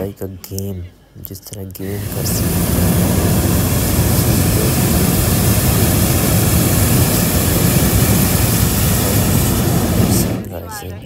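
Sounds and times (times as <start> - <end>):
propane burner blast: 1.8 - 10.6.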